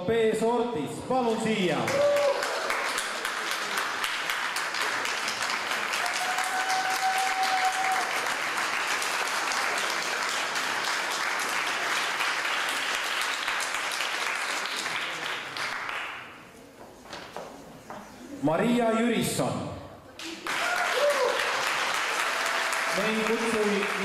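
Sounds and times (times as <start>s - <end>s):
audience applauding: 1.9s - 16.3s, 20.2s - 24.0s.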